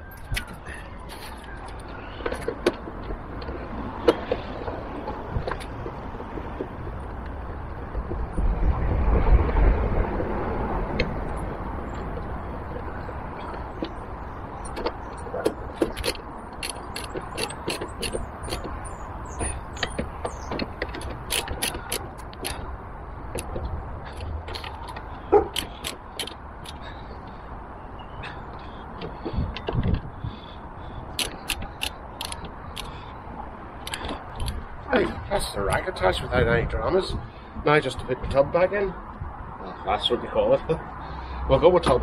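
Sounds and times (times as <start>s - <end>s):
ratchet clicking: 15.8s - 22.6s, 24.1s - 26.8s, 31.2s - 33.0s.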